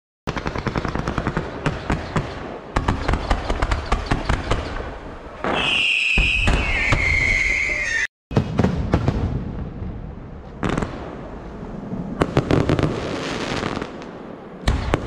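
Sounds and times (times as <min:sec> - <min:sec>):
fireworks bangs and crackling: 0:00.3 - 0:15.0
rumbling firework bursts: 0:00.3 - 0:15.0
fireworks whistles falling in pitch: 0:05.4 - 0:08.5.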